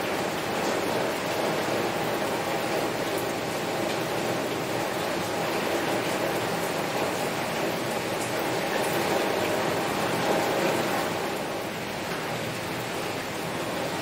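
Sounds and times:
heavy rain on a window: 0:00.0 - 0:14.0.

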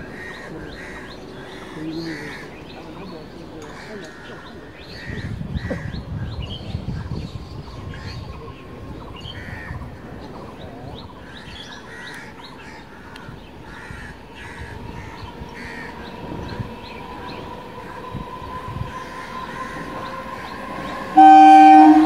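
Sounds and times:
crows cawing: 0:11.9 - 0:14.8
train hum: 0:12.5 - 0:22.0.

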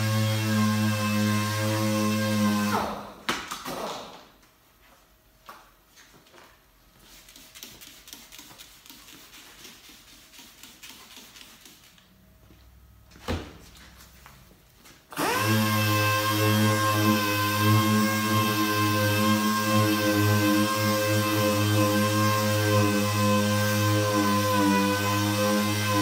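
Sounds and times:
air-powered orbital sander running: 0:15.2 - 0:26.0.

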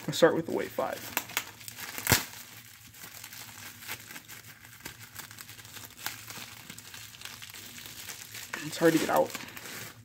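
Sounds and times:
bubble wrap crinkling: 0:00.0 - 0:10.0.

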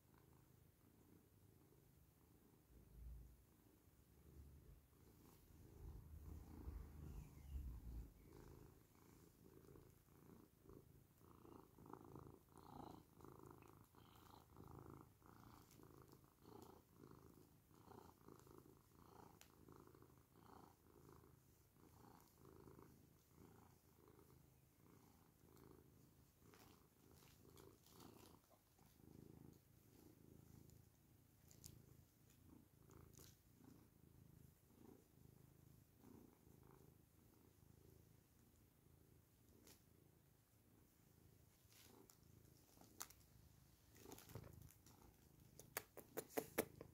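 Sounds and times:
cat purring: 0:00.0 - 0:46.9.

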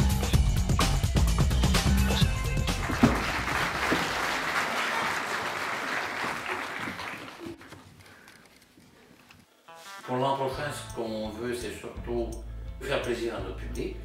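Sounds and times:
audience applauding: 0:02.6 - 0:07.8.

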